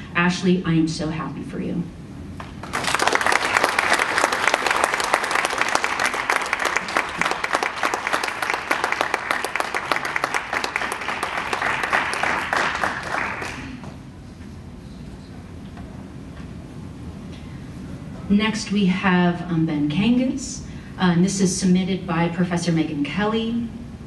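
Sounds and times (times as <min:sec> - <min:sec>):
audience applauding: 0:02.6 - 0:13.9.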